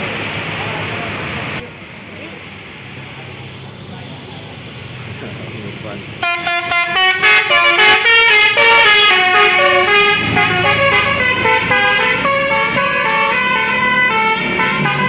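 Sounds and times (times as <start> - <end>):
bus engine rumble: 0.0 - 15.0
bus horn playing stepping notes: 6.2 - 15.0.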